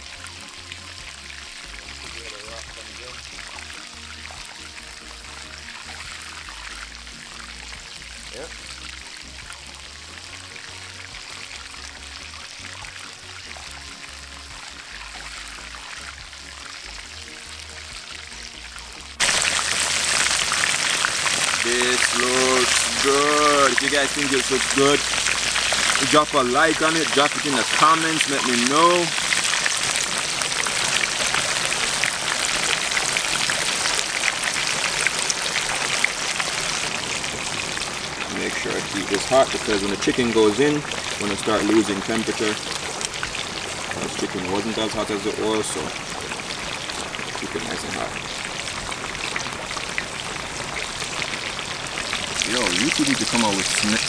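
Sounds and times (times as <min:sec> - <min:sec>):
background music with bassline: 0:00.0 - 0:30.3
chicken sizzling in hot oil: 0:00.0 - 0:54.0.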